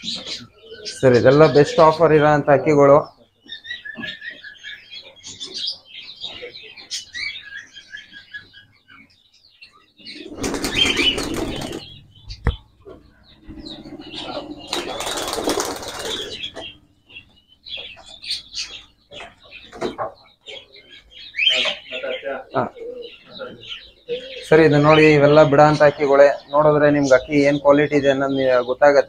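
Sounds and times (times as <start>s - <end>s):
pigeons flapping wings: 10.3s - 11.9s, 14.7s - 16.4s
faint chirps: 10.8s - 19.4s.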